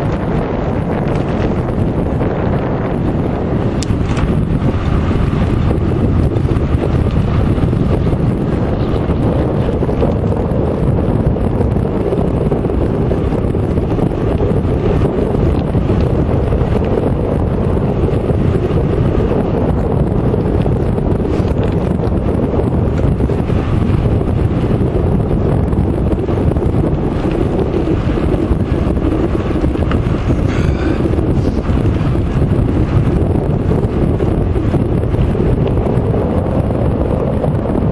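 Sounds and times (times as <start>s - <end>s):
wind buffeting microphone: 0.0s - 37.9s.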